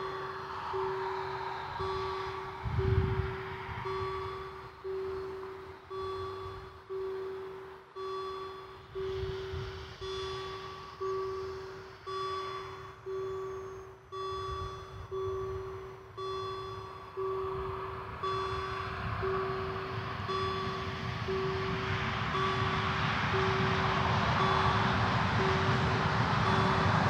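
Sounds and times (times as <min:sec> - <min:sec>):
rushing noise: 0:00.0 - 0:06.7, 0:17.7 - 0:27.0
level crossing warning bell: 0:00.0 - 0:27.0.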